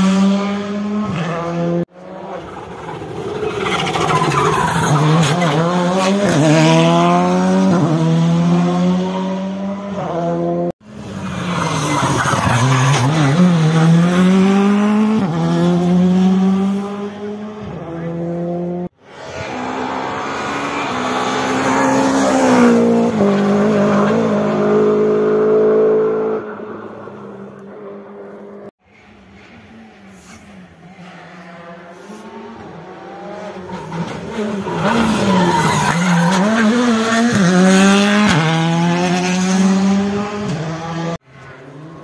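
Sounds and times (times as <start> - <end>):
rally car engines revving: 0.0 - 42.0.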